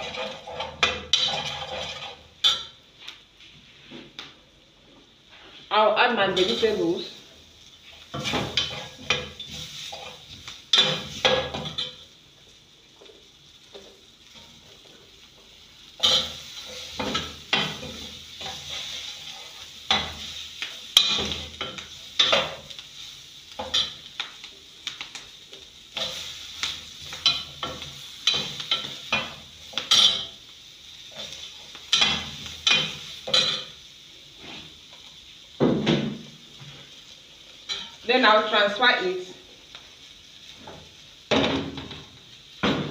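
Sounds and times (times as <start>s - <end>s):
metal spoon scraping frying pan: 0.0s - 2.7s, 8.0s - 12.0s, 16.0s - 20.3s, 27.0s - 30.4s
frying sizzle: 0.0s - 42.9s.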